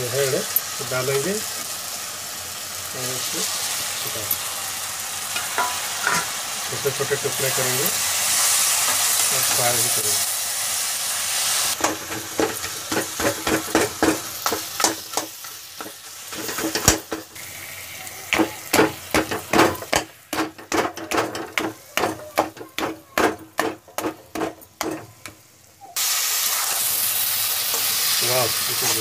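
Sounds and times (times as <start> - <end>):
faint sizzle: 0.0 - 29.0
metal spatula scraping a pan: 11.8 - 17.1.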